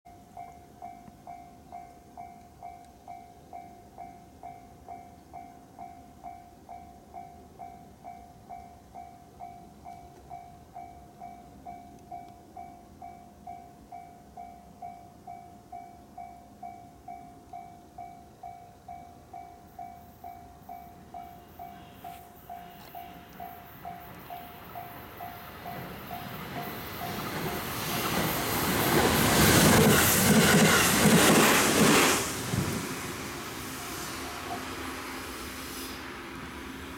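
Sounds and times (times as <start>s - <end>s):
level crossing warning bell ringing: 0.1s - 27.7s.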